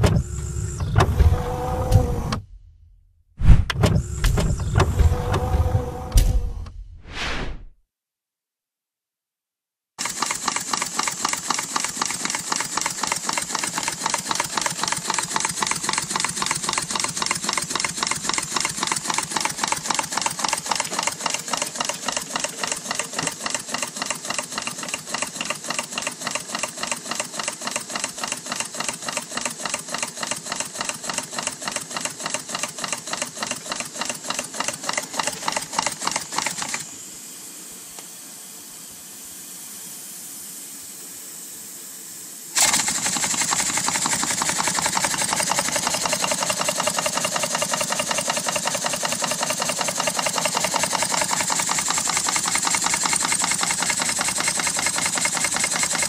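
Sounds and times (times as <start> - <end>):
steam hissing: 10.0 - 56.0.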